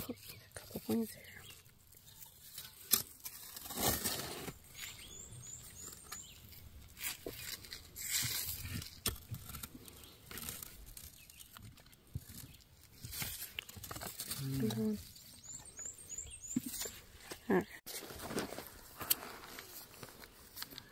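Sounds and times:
hand scraping soil and rock: 0.0s - 20.9s.

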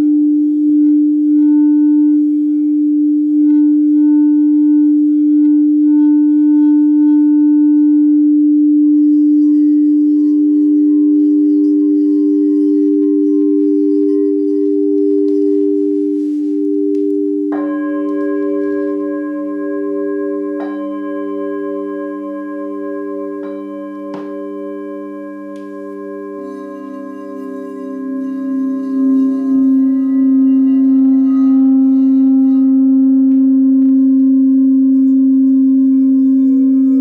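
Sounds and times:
higher pulsing bowl tone: 0.0s - 37.0s
singing bowl low tone: 0.0s - 37.0s
bowl struck with mallet: 8.9s - 37.0s.

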